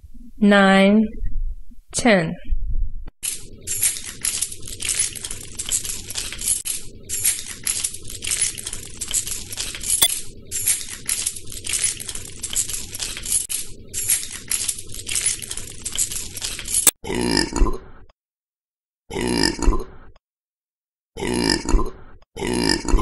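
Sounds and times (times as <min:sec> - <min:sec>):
keys jingling: 0:03.6 - 0:17.0.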